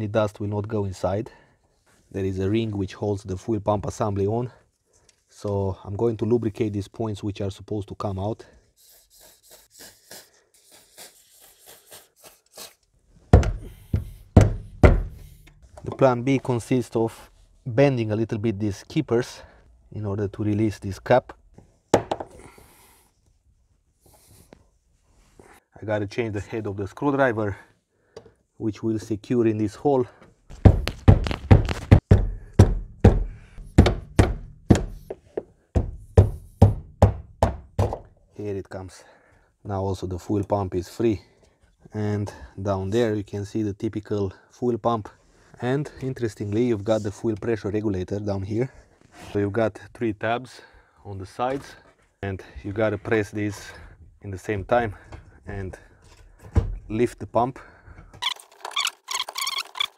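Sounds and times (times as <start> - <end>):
heavy knocks: 13.3 - 15.6, 30.5 - 35.2, 35.8 - 38.1.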